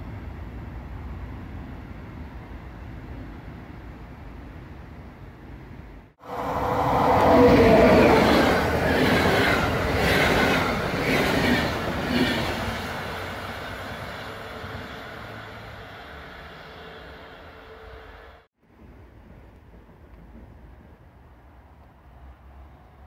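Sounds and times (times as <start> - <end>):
electric locomotive whine: 6.2 - 18.5.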